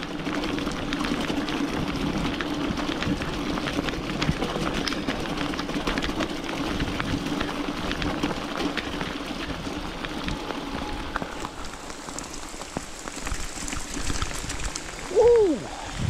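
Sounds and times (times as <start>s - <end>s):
mountain bike rolling on mud: 0.0s - 16.0s
raindrops ticking on microphone: 0.0s - 16.0s.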